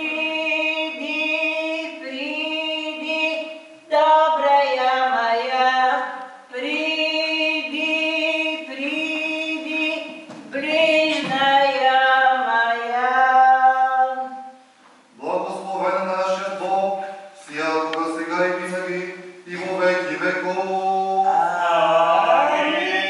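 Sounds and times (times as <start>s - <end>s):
woman singing chant unaccompanied: 0.0s - 14.6s.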